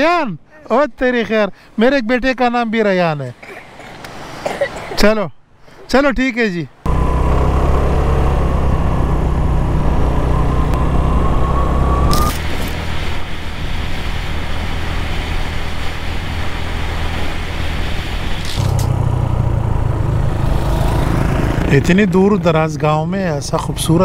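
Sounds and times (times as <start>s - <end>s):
motorcycle engine running: 6.9s - 11.1s, 18.5s - 22.2s
thin whine: 6.9s - 20.0s
rushing wind: 6.9s - 22.7s.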